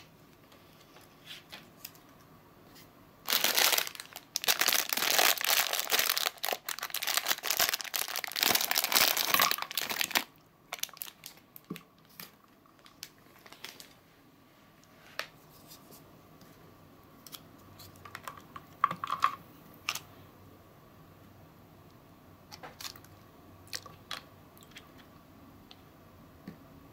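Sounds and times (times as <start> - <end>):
plastic bag crinkling: 3.2 - 14.0.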